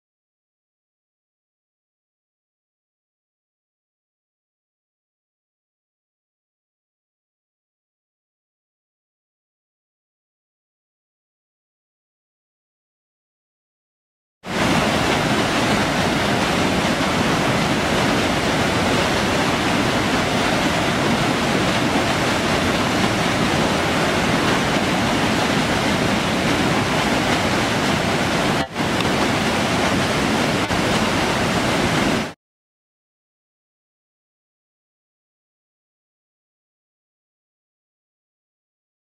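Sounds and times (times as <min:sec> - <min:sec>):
water rushing over rocks: 0:14.5 - 0:32.4.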